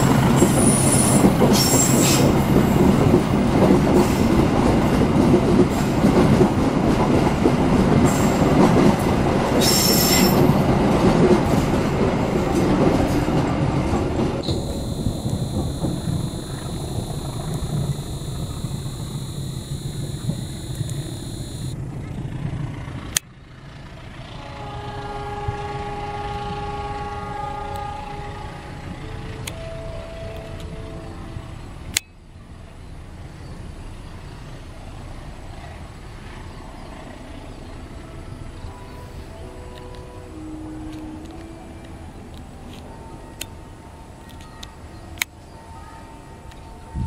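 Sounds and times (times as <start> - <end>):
diesel locomotive engine rumble: 0.0 - 47.0
high-pitched whine: 14.4 - 21.8.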